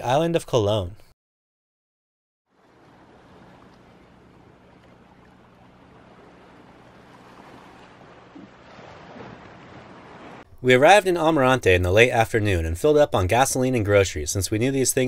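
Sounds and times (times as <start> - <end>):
low engine hum: 2.5 - 10.4
wind and water hiss: 2.5 - 10.6.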